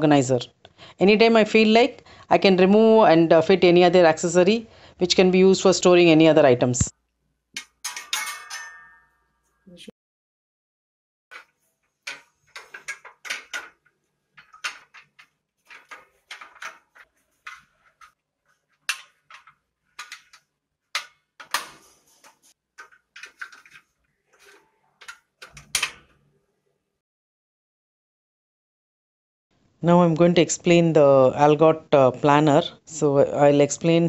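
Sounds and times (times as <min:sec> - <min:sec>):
metal brackets clicking and clinking: 0:07.6 - 0:09.1, 0:11.3 - 0:18.2.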